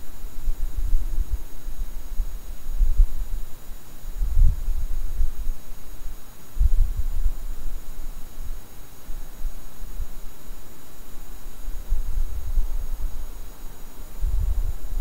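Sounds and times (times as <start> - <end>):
low rumbling in gusts: 4.1 - 5.6, 14.1 - 15.0.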